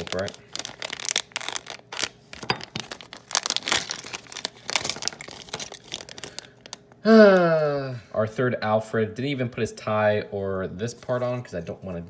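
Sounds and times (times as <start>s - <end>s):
plastic pouch crinkling: 0.0s - 7.0s.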